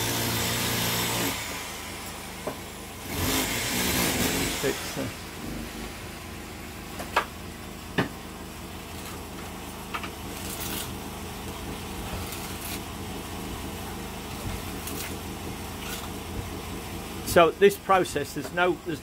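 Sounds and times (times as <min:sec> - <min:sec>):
steady low hum: 0:01.4 - 0:19.0
trowel scraping plaster: 0:08.8 - 0:13.2, 0:14.0 - 0:16.2.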